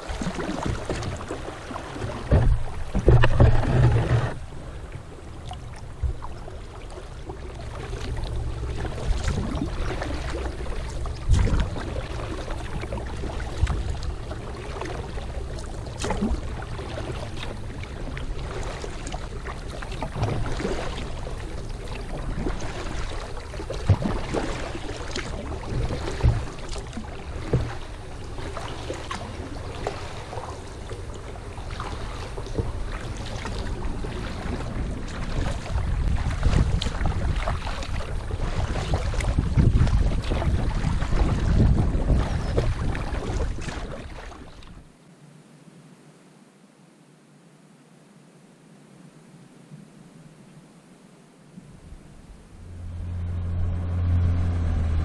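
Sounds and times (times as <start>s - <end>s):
low steady rumble: 0.0s - 44.9s, 51.6s - 55.0s
paddle blades splashing in water: 0.0s - 44.9s
water drips and knocks: 2.0s - 4.4s, 11.1s - 11.9s, 23.6s - 27.9s.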